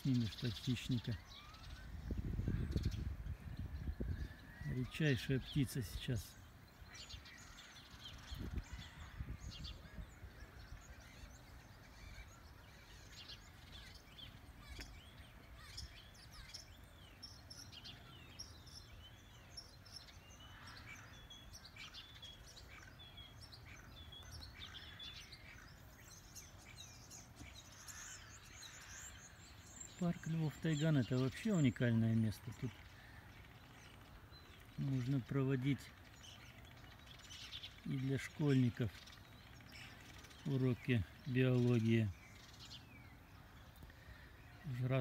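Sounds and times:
small birds chirping: 0:00.0 - 0:45.0.

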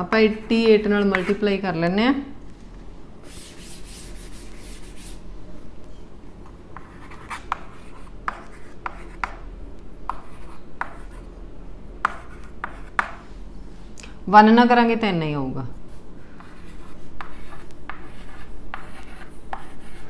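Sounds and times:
chalk strokes and taps: 0:00.4 - 0:01.4, 0:03.3 - 0:05.2, 0:16.4 - 0:20.0
blackboard being wiped: 0:03.2 - 0:05.2.

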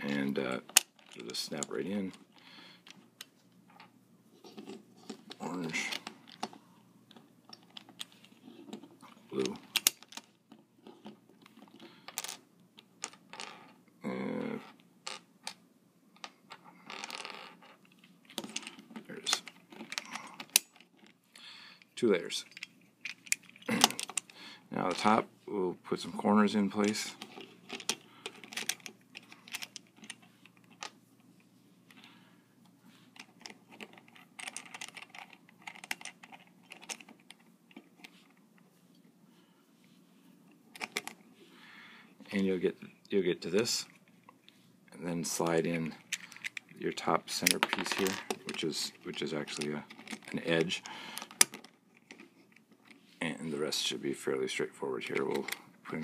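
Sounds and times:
plastic puzzle pieces clicking: 0:33.2 - 0:37.4.

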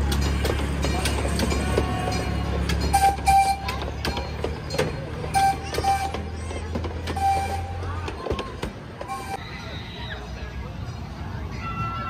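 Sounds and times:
train motor humming: 0:00.0 - 0:09.4
wheels clicking on track: 0:00.0 - 0:09.4.

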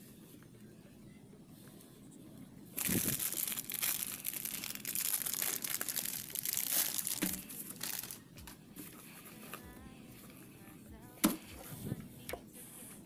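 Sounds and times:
plastic wrapper crinkling: 0:02.8 - 0:09.6.

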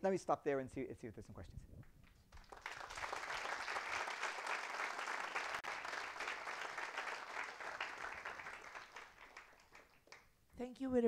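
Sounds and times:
audience applauding: 0:02.3 - 0:10.3.

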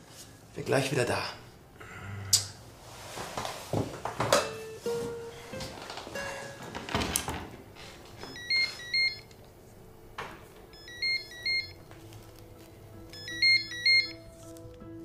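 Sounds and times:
cordless phone ringing: 0:08.2 - 0:09.3, 0:10.7 - 0:11.8, 0:13.1 - 0:14.2.

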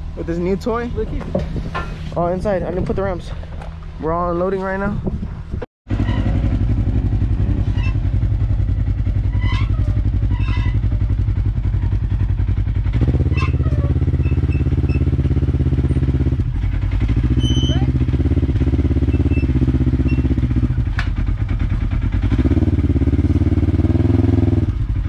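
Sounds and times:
engine idling: 0:05.9 - 0:25.0.

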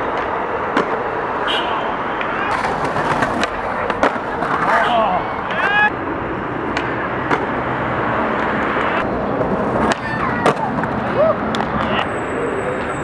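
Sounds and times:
skateboard clacks: 0:00.0 - 0:01.4, 0:02.0 - 0:05.9, 0:06.6 - 0:12.1
skateboard wheels rolling on stone: 0:02.0 - 0:12.0.

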